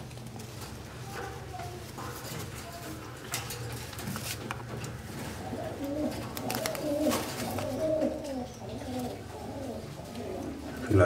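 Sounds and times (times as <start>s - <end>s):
pigeons cooing: 4.6s - 11.0s.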